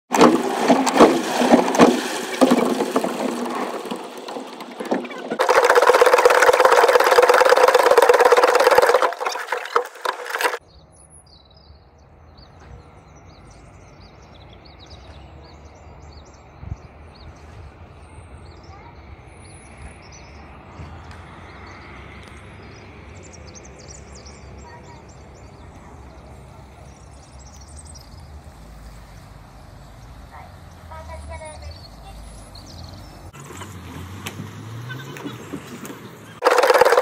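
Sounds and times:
clicks and knocks: 0.1 - 10.6
birds chirping: 18.3 - 33.4.

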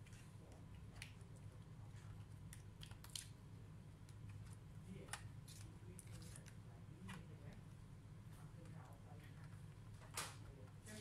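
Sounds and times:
steady low hum: 0.0 - 11.0
faint clicks and scratchy handling: 4.1 - 7.8.

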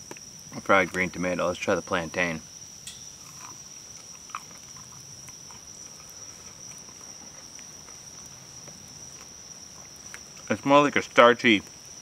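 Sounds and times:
crickets chirping: 0.0 - 12.0
person chewing: 3.2 - 8.2.

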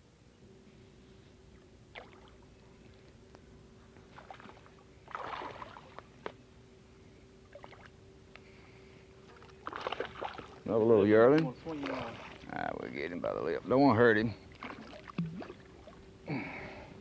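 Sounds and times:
faint steady hum: 0.0 - 17.0
fish splashing at surface: 4.2 - 6.0, 9.4 - 10.6.

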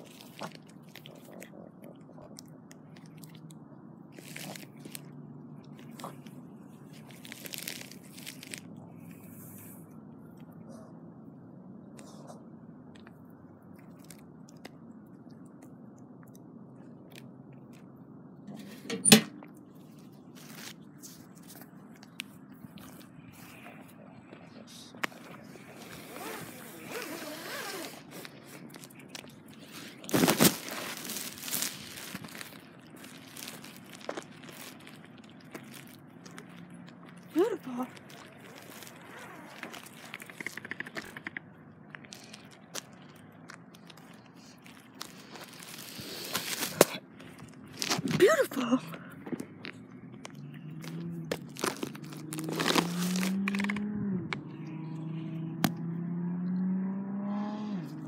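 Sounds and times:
leash handling noise: 17.2 - 48.2, 49.2 - 54.6
metal mailbox door clacking shut: 18.6 - 19.4.

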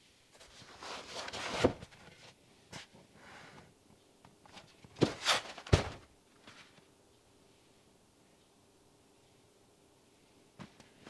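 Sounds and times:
cardboard box thud: 5.0 - 6.0.

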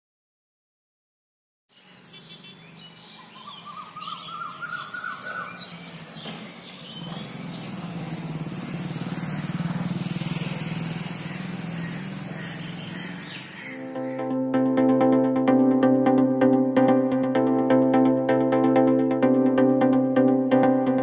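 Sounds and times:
birds chirping: 1.7 - 14.5
motorcycle engine passing: 4.3 - 14.4.

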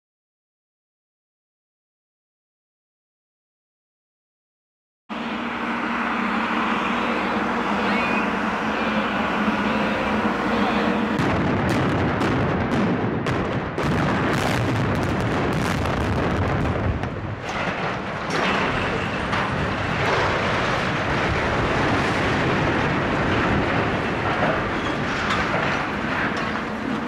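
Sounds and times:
concrete silos crashing down: 6.6 - 27.0
explosive charges cracking: 11.1 - 25.8.

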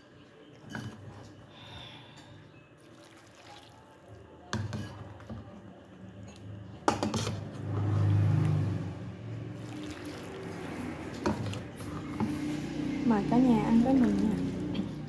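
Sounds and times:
broth pouring into a bowl: 2.8 - 4.0, 9.5 - 11.3.

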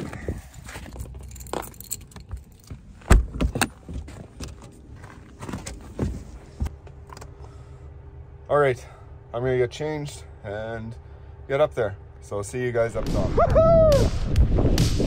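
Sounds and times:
faint steady hum: 0.0 - 13.0
jangling: 0.9 - 2.9.

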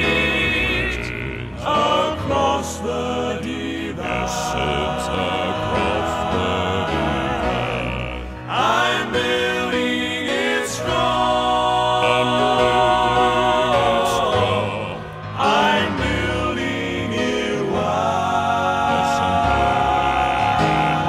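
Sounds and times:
male quartet singing in harmony: 0.0 - 21.0.

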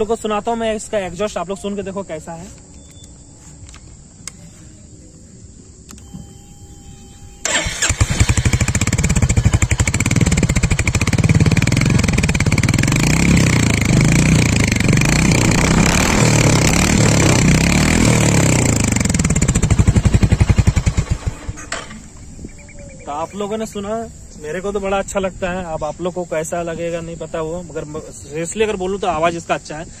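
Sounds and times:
motorcycle engine running: 6.8 - 22.9.

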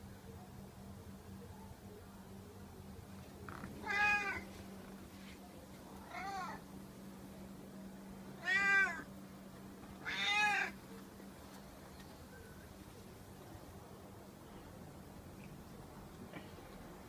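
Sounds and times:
cat meowing: 3.8 - 4.4, 6.0 - 6.6, 8.4 - 9.0, 10.0 - 10.8.

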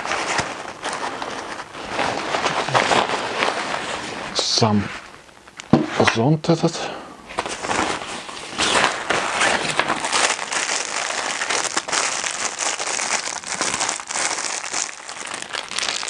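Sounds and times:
plastic bag crinkling: 0.0 - 4.3, 7.4 - 16.0.

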